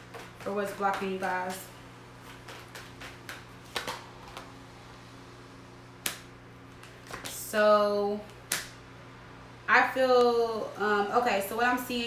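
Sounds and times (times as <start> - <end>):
cards being shuffled: 0.0 - 4.5, 6.0 - 7.4.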